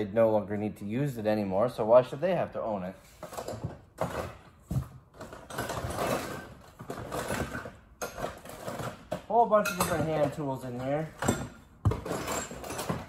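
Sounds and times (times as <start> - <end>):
rummaging through tools: 2.9 - 13.0.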